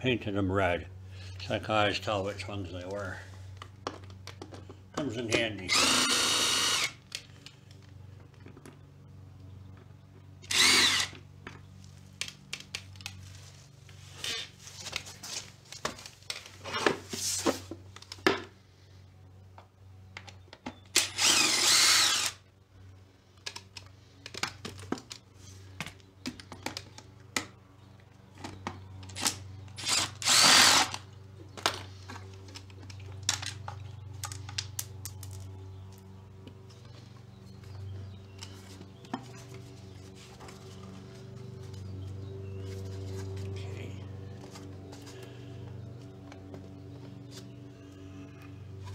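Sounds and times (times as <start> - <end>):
steady low hum: 0.0 - 48.9
cordless drill whirring: 5.7 - 7.0, 10.4 - 11.2, 21.0 - 22.4, 29.2 - 31.0.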